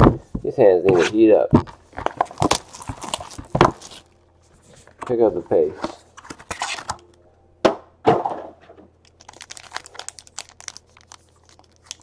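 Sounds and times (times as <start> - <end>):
plastic pack crinkling: 1.9 - 4.2, 9.0 - 12.0
cardboard box cracking open: 2.0 - 4.0.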